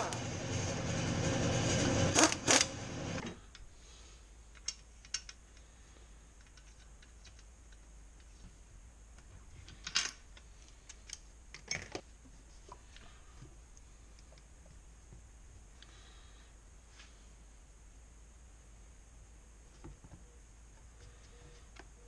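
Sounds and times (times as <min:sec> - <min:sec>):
loud steady noise with clacks: 0:00.0 - 0:03.2
metal tools clicking and tapping: 0:04.5 - 0:05.4.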